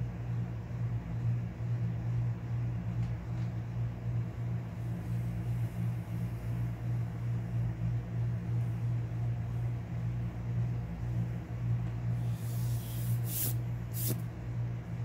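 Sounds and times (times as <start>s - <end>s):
low mechanical hum: 0.0s - 15.0s
faint hiss: 12.2s - 14.2s.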